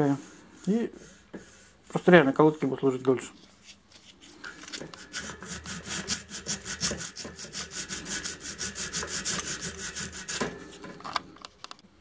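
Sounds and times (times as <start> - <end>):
sandpaper rubbing metal rim: 4.4 - 10.9.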